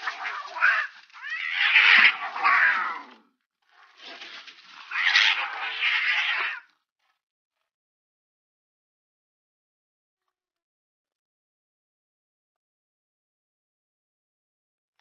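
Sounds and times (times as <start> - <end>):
cats screeching and yowling: 0.0 - 3.3, 4.7 - 6.7.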